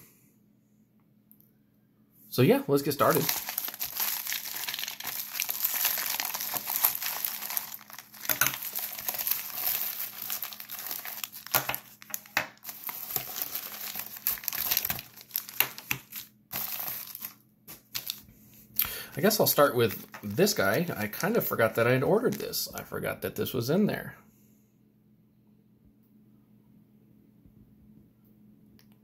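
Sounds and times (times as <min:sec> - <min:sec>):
plastic packaging crinkling: 0:02.8 - 0:22.6.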